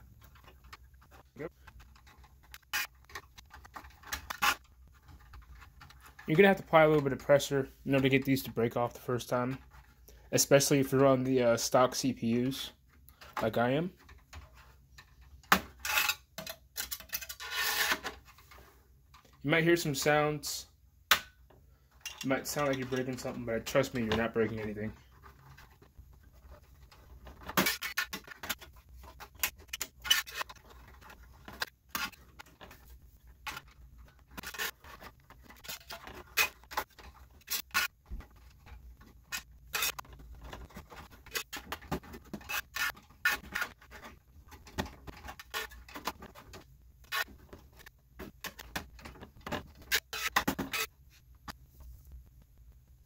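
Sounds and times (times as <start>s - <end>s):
small metal clicks and scrapes: 12.9s - 19.4s, 21.9s - 50.9s.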